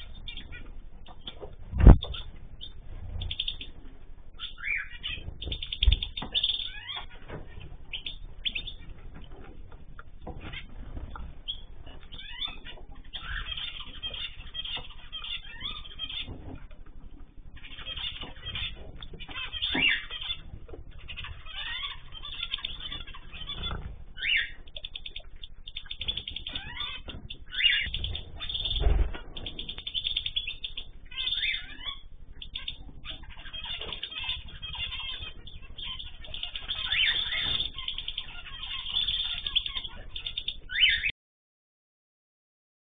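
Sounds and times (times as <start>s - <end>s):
finches chirping and twittering: 0.0s - 41.1s
low thumps: 1.4s - 3.8s.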